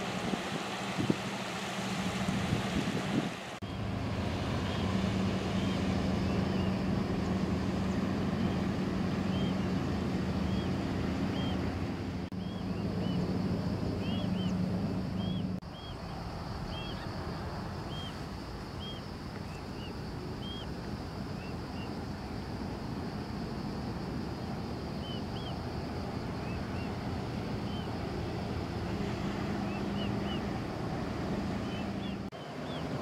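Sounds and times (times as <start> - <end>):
jet engines droning: 0.0 - 33.0.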